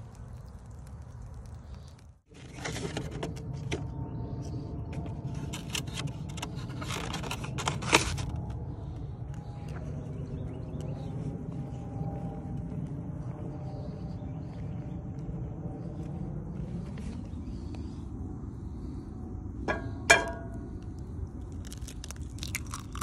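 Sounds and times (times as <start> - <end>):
steady low rumble: 0.0 - 23.0.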